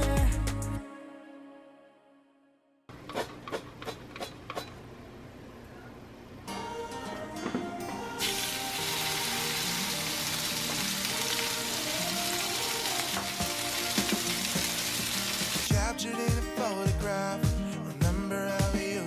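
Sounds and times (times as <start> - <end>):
background music with a beat: 0.0 - 0.8, 12.0 - 14.8, 15.4 - 19.0
meat sizzling in a pot: 8.2 - 15.7.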